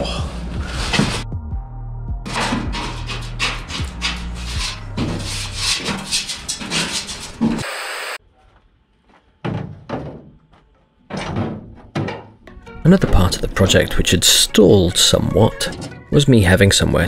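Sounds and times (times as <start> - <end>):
paintbrush scrubbing on metal: 2.3 - 7.6.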